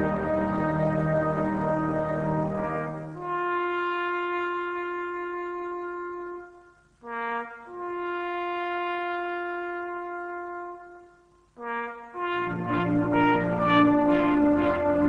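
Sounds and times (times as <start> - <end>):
brass instruments in harmony: 0.0 - 15.0
solo brass melody: 0.0 - 15.0.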